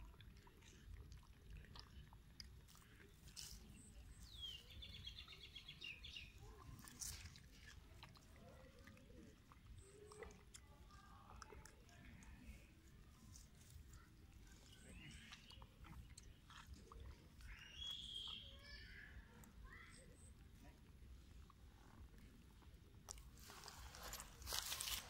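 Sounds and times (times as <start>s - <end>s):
monkey chewing: 0.0s - 5.2s, 6.1s - 18.1s
high chirping call: 17.5s - 18.9s.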